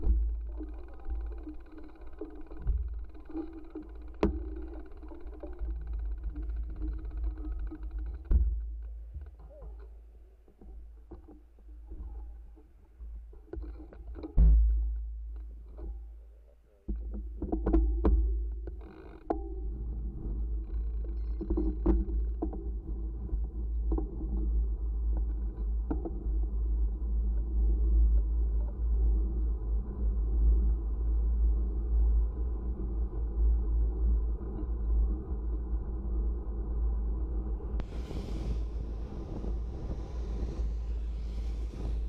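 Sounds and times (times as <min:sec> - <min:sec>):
bike knocks and rattles: 0:00.0 - 0:10.0, 0:16.9 - 0:19.6
wind buffeting microphone: 0:29.8 - 0:42.0.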